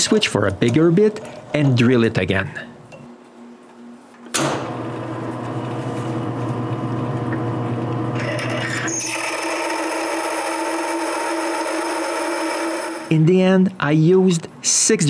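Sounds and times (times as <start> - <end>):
wood lathe humming: 4.7 - 13.1
drill bit cutting metal whine: 8.2 - 13.1.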